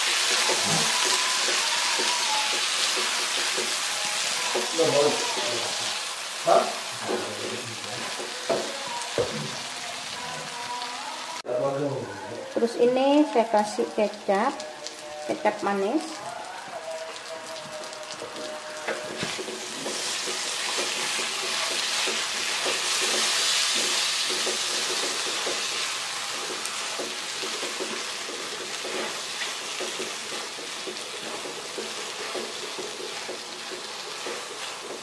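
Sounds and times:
sausages sizzling in a wok: 0.0s - 35.0s
spatula scraping and tapping pan: 18.9s - 35.0s.

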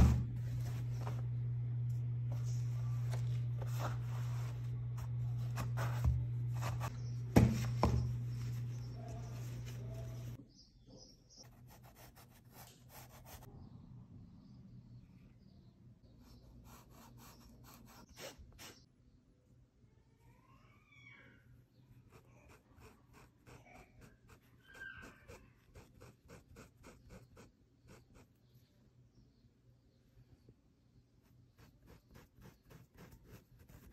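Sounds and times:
steady low hum: 0.0s - 10.4s.

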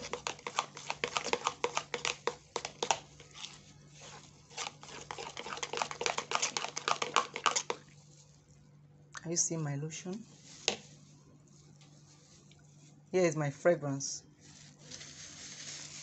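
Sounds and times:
metal spoon stirring cream: 0.0s - 7.8s.

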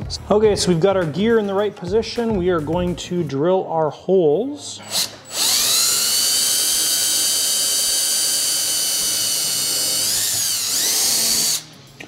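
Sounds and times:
cordless drill whining: 4.8s - 11.7s.

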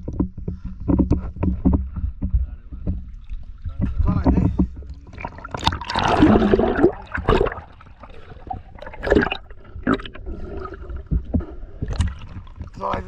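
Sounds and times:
muffled underwater gurgling: 2.6s - 13.0s
water splash: 5.0s - 12.8s.

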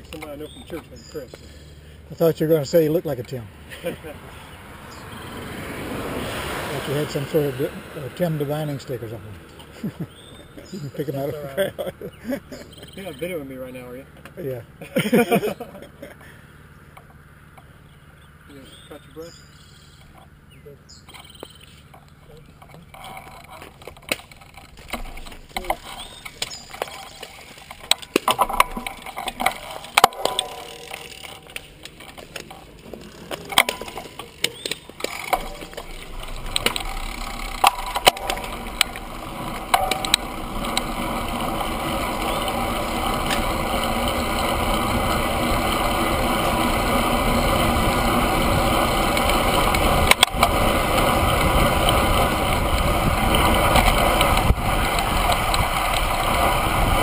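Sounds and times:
wind and tyre noise: 0.0s - 14.8s, 15.9s - 57.0s
bicycle clicks and knocks: 20.9s - 57.0s.

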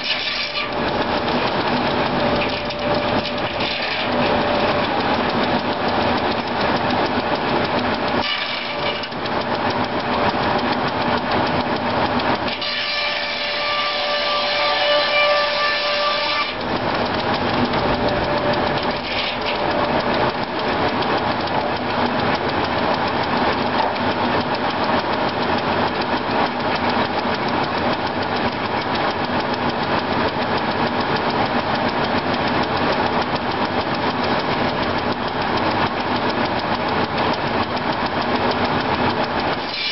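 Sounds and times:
saw blade ringing whine: 0.0s - 9.2s, 12.4s - 20.6s, 39.6s - 39.9s
circular saw mill running: 0.0s - 39.9s.

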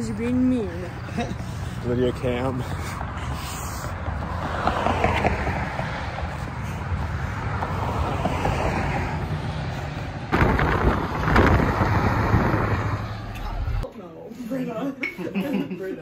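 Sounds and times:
wind rumbling on microphone: 7.5s - 13.8s.

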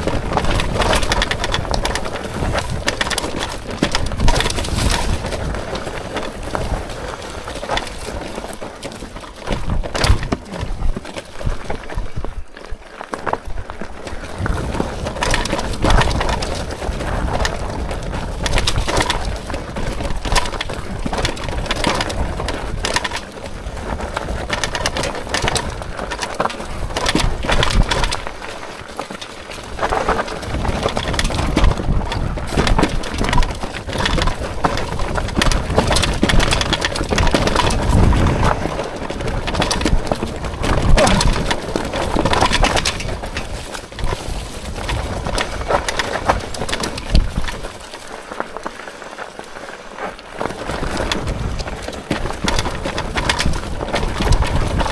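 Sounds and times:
bike clattering and rattling: 0.0s - 54.9s
tyres crunching over stones: 0.0s - 54.9s.

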